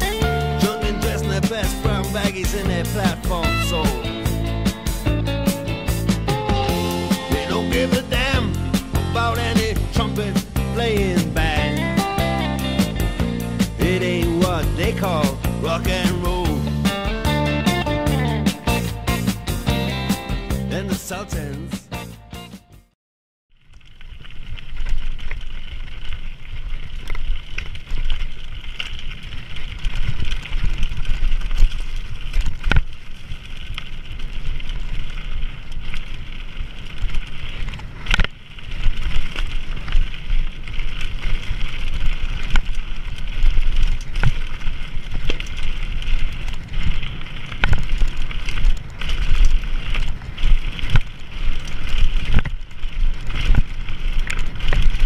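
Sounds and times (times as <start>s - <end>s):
tyres crunching over gravel: 0.0s - 21.6s, 23.6s - 55.0s.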